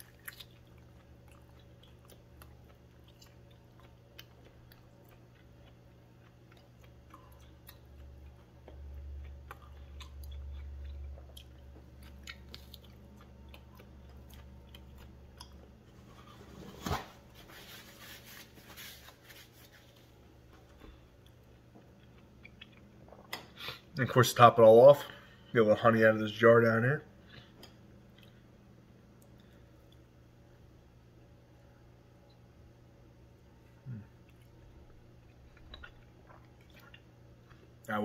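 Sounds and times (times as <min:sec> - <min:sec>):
chewing raw meat: 0:00.0 - 0:15.9, 0:20.7 - 0:23.8, 0:33.6 - 0:38.0.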